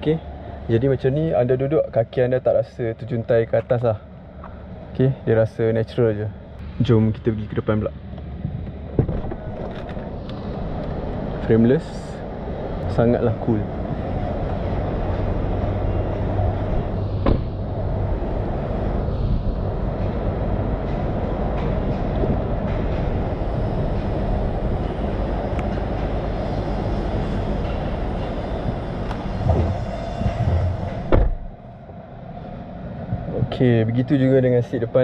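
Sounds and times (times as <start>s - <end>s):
city background rumble: 0.0s - 35.0s
car door shutting: 9.0s - 10.0s, 17.2s - 17.6s, 29.5s - 31.5s.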